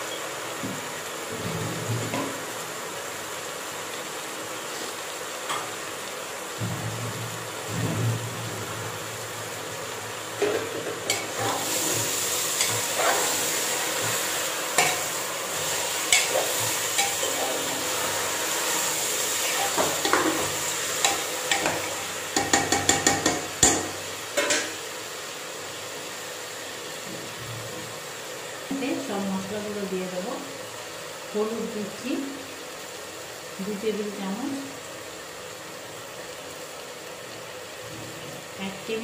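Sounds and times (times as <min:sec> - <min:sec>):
meat sizzling in hot oil: 0:00.0 - 0:39.0
spoon knocks on pot: 0:22.4 - 0:24.7.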